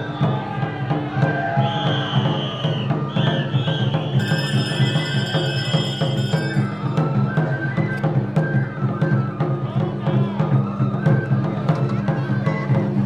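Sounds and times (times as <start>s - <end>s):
repeated drum strikes: 0.0s - 13.0s
high held melody line: 4.2s - 7.1s.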